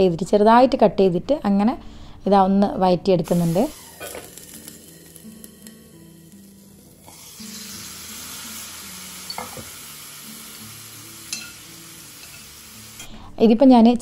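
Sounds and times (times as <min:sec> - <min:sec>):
vegetables sizzling in a pan: 0:03.2 - 0:13.1.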